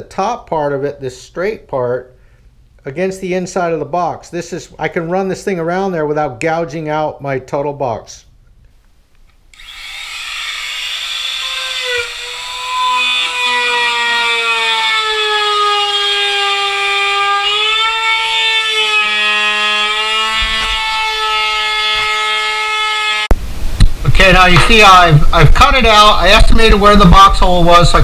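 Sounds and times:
router whining while cutting: 0:09.6 - 0:23.3.

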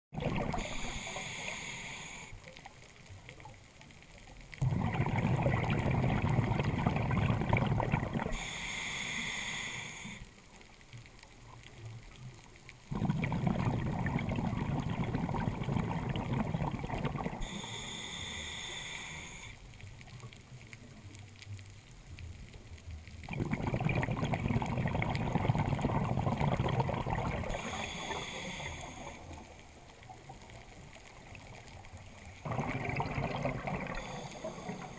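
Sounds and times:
exhaled bubbles rushing: 0:00.1 - 0:00.9, 0:04.6 - 0:08.5, 0:12.9 - 0:17.5, 0:23.2 - 0:28.2, 0:32.4 - 0:34.9
regulator hissing inhalations: 0:00.6 - 0:02.5, 0:08.3 - 0:10.4, 0:17.4 - 0:19.6, 0:27.5 - 0:29.5, 0:33.8 - 0:34.9.

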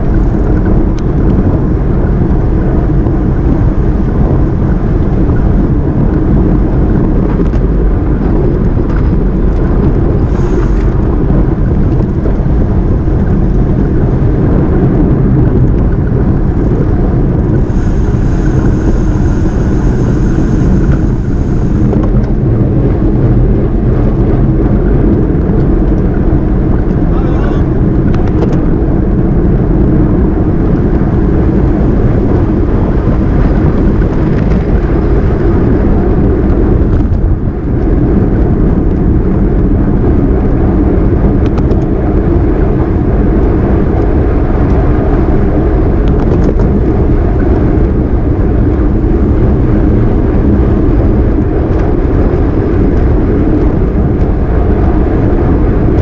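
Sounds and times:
bicycle tyre noise on road: 0:00.0 - 0:56.0
wind rushing over microphone: 0:00.0 - 0:56.0
thin high whine: 0:10.2 - 0:11.0, 0:17.6 - 0:22.4.

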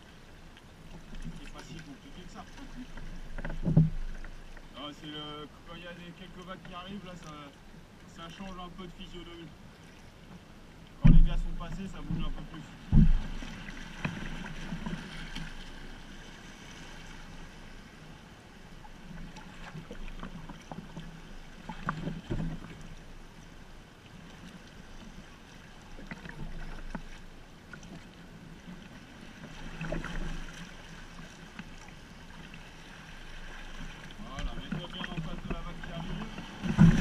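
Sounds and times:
water splashing: 0:00.0 - 0:05.2, 0:11.0 - 0:18.0, 0:18.7 - 0:37.0
water lapping against hull: 0:00.0 - 0:37.0
sharp ticks of water: 0:00.4 - 0:01.7.

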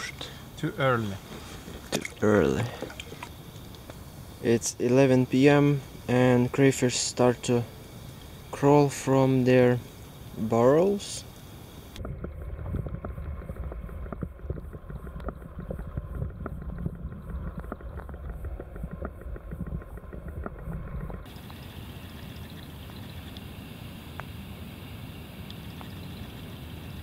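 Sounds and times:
faint steady hiss: 0:00.0 - 0:12.0, 0:20.4 - 0:27.0
small underwater clicks: 0:01.9 - 0:04.0, 0:11.9 - 0:23.5
underwater low rumble: 0:11.9 - 0:21.4.

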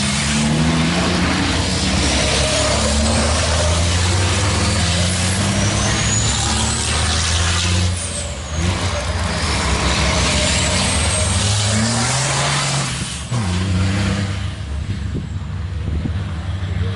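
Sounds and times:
truck engines running hard: 0:00.0 - 0:16.9
tyres hissing on wet track: 0:00.2 - 0:08.7.

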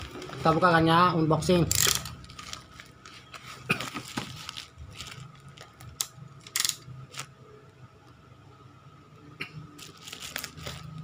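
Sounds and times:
plastic wrap rustling: 0:00.0 - 0:07.3, 0:09.8 - 0:11.0.

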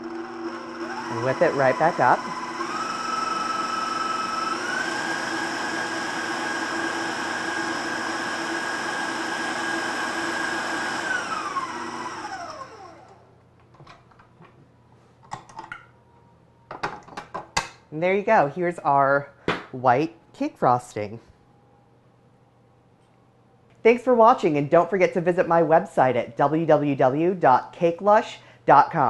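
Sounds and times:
stand mixer motor whine: 0:00.0 - 0:13.3.

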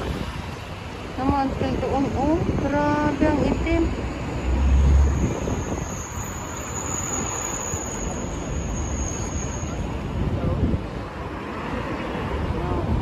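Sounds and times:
wind buffeting microphone: 0:00.0 - 0:07.4
street traffic noise: 0:00.0 - 0:13.0.

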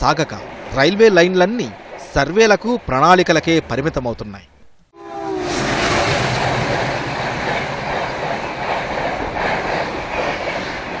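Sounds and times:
train wheels rattling on rails: 0:05.1 - 0:11.0.

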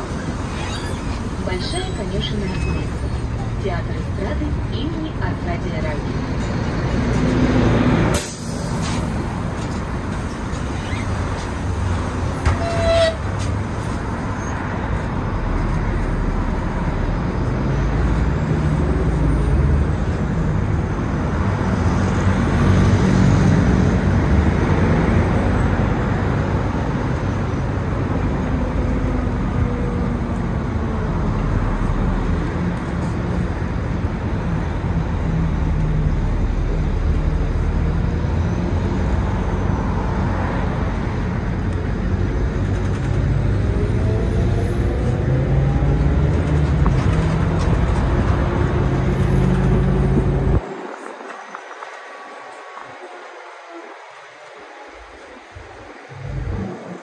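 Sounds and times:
bus engine and road rumble: 0:00.0 - 0:57.0
bus passing close by: 0:00.0 - 0:57.0
street traffic: 0:00.0 - 0:57.0
short high squeak: 0:00.2 - 0:03.3, 0:10.7 - 0:11.2, 0:12.4 - 0:13.2.

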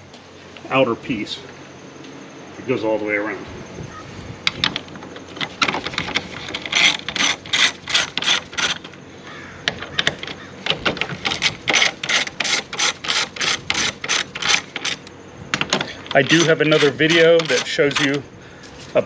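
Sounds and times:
hand ratchet clicking: 0:05.7 - 0:08.9, 0:09.9 - 0:15.0, 0:16.1 - 0:18.2.

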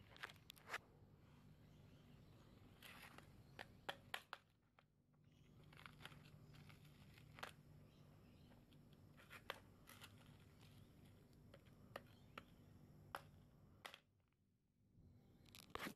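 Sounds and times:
small clicks and crackles: 0:00.0 - 0:00.8, 0:02.8 - 0:14.1, 0:15.4 - 0:15.9
faint low hum: 0:00.0 - 0:15.9.

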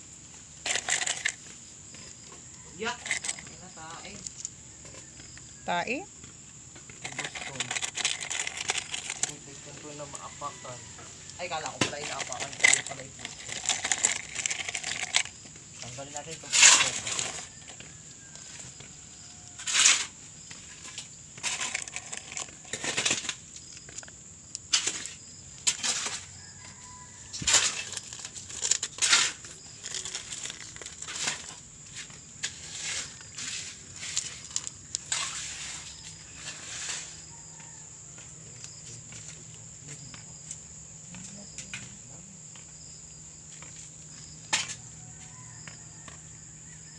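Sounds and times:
crickets chirring: 0:00.0 - 0:46.9
rustling from handling: 0:06.9 - 0:24.1.

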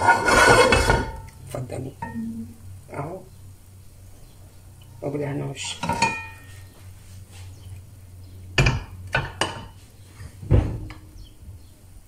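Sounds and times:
low steady hum: 0:00.0 - 0:12.0
glass dish knocking on stove grate: 0:08.6 - 0:09.7.

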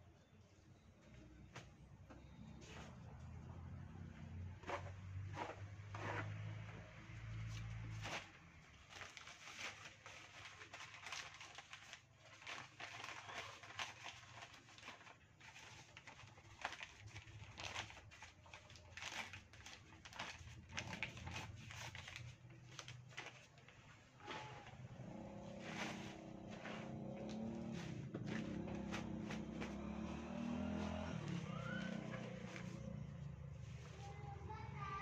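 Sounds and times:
plastic bag crinkling: 0:07.9 - 0:34.2.

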